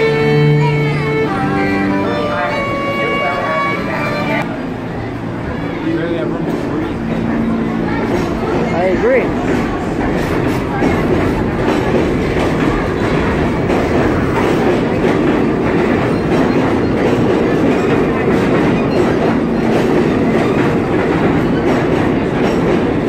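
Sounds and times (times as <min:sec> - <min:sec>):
train wheels rumbling on rail: 0:00.0 - 0:23.0
wheels clacking over rail joints: 0:06.4 - 0:23.0.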